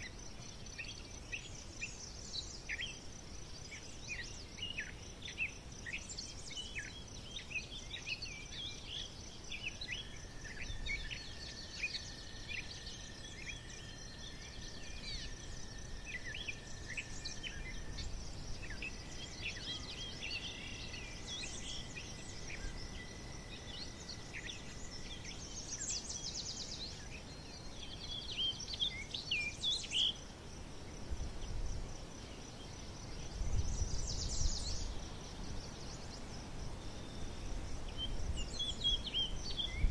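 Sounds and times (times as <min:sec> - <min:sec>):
thin steady high tone: 0:09.4 - 0:30.0.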